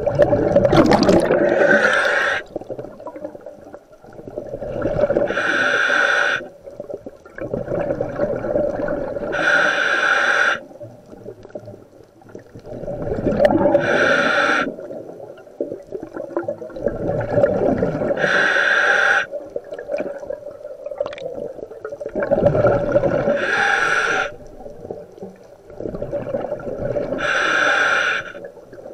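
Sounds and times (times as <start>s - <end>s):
exhaled bubbles gurgling: 0.0s - 28.9s
regulator inhale hiss: 1.4s - 2.5s, 5.3s - 6.5s, 9.3s - 10.7s, 13.7s - 14.7s, 18.2s - 19.4s, 23.3s - 24.4s, 27.1s - 28.5s.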